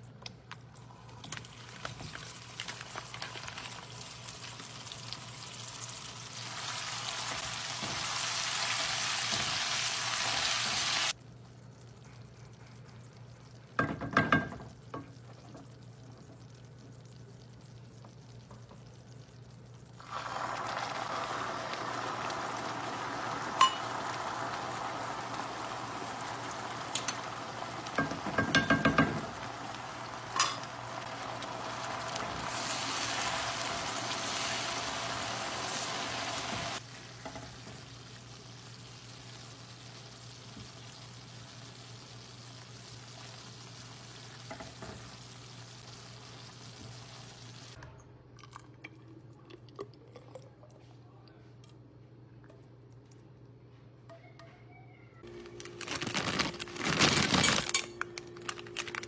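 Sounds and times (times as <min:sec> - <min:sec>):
caramel sizzling and bubbling: 0:00.6 - 0:47.8
utensils clattering against pan: 0:30.3 - 0:30.7.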